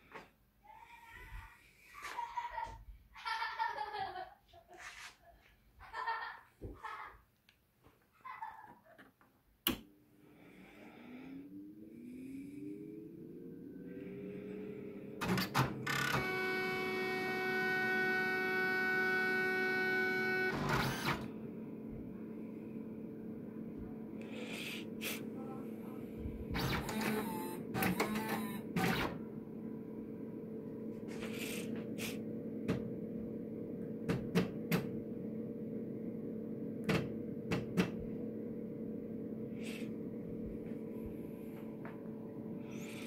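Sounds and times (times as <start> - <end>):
steady buzzing tone: 10.2 - 24.8
printer humming: 14.0 - 43.0.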